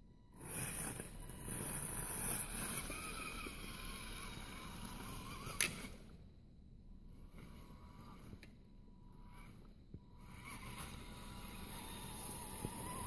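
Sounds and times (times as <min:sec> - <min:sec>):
electric motor whining: 0:00.3 - 0:06.1, 0:07.1 - 0:13.0.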